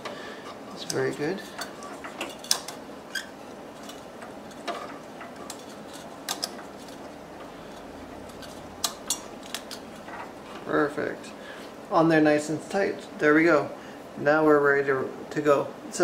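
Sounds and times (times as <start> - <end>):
metal fan clips clicking on fins: 0.8 - 3.2, 3.8 - 10.3.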